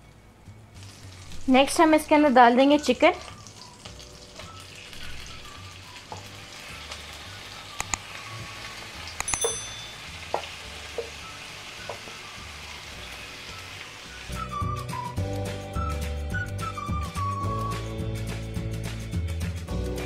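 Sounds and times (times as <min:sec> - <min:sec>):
chicken sizzling in butter: 0:00.8 - 0:14.7.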